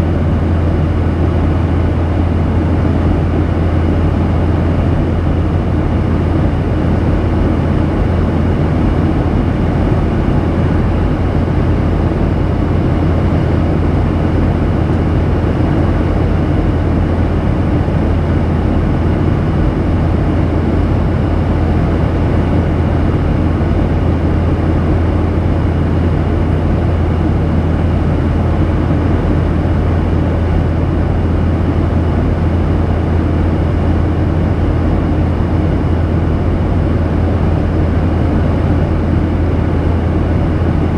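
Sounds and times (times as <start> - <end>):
jet engine low hum: 0.0 - 40.9.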